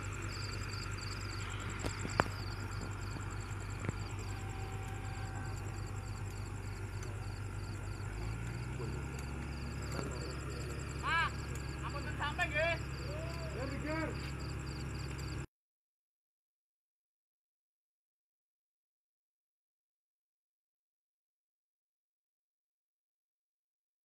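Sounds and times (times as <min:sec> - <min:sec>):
heavy machinery engine running: 0:00.0 - 0:15.5
insects chirping: 0:00.0 - 0:15.5.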